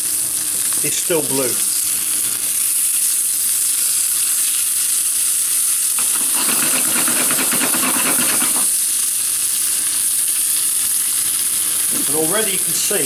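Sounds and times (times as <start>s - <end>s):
steaks sizzling in frying pan: 0.0s - 13.0s
pan rattling on burner grate: 6.0s - 8.8s.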